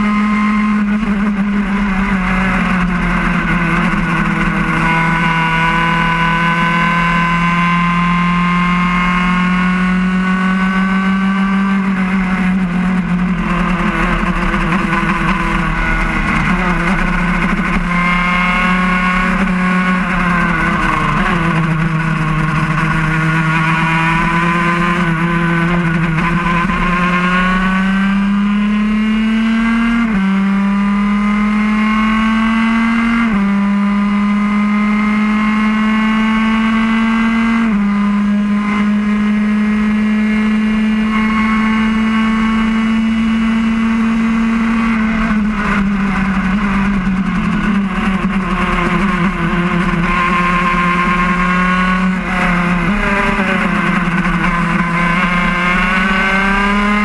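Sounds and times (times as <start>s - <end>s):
kart engine at full speed: 0.0s - 57.0s.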